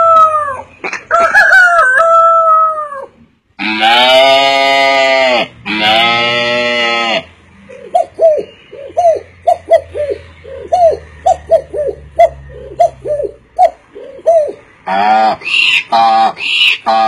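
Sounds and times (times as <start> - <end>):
man imitating dove coos: 0.0 - 0.7.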